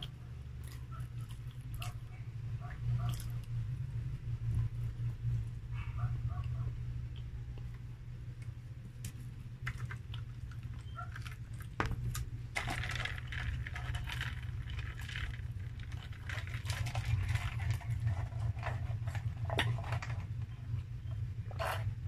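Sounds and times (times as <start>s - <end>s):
steady low hum: 0.0s - 22.0s
paper cups clicking and rustling: 8.9s - 22.0s.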